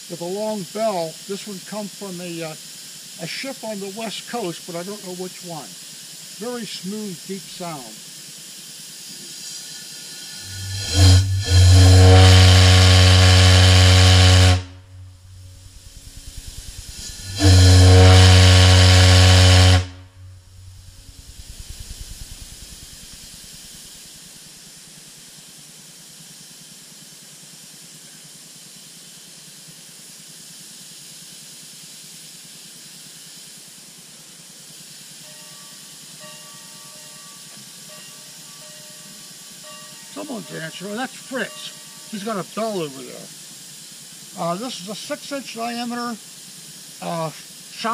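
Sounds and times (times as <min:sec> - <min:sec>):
faint steady hiss: 0:00.0 - 0:47.9
ship's whistle blasts: 0:10.4 - 0:21.0, 0:38.6 - 0:42.2.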